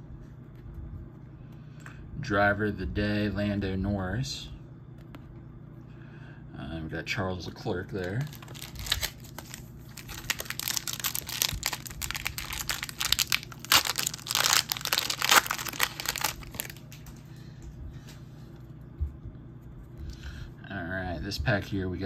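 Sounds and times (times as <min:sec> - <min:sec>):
quiet handling of cards: 0:00.0 - 0:02.2
foil wrapper tearing and crinkling: 0:08.1 - 0:17.0.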